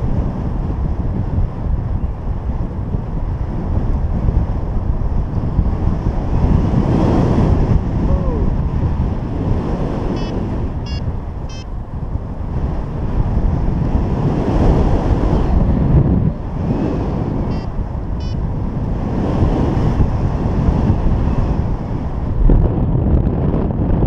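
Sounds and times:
wind rushing over microphone: 0.0s - 24.0s
short high beeps: 10.2s - 11.7s, 17.5s - 18.4s.

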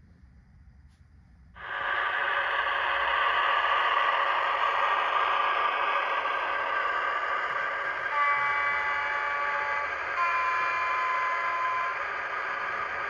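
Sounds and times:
diesel engine idling sound: 1.6s - 13.0s
model locomotive horn through speaker: 7.9s - 12.1s.

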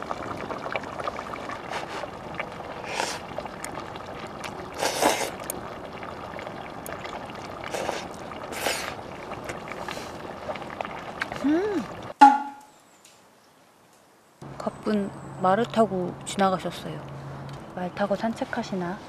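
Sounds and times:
noodles slurped: 0.5s - 12.1s.

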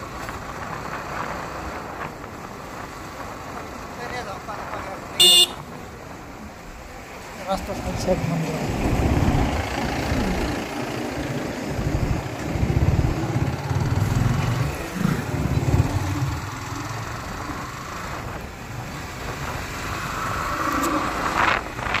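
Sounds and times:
wind noise: 7.8s - 22.0s
motorcycle engine running: 8.9s - 18.3s.

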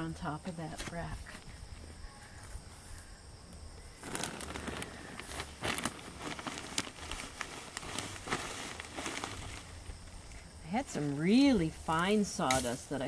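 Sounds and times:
crackles and clicks: 3.5s - 11.0s
plastic sack rustling and crinkling: 4.0s - 13.0s.

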